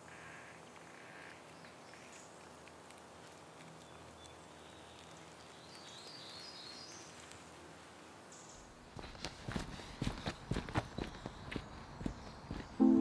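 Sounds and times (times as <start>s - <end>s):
low steady forest hush: 0.0s - 13.0s.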